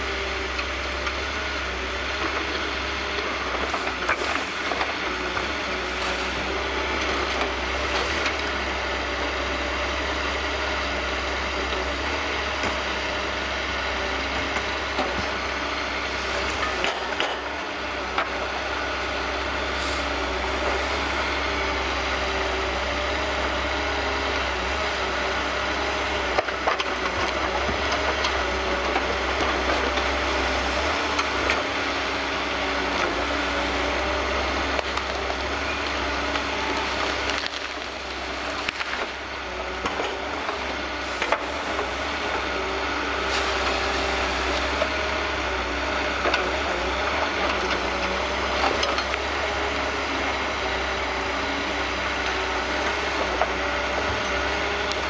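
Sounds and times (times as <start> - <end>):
diesel engine running: 0.0 - 55.0
hydraulic crane working: 0.0 - 55.0.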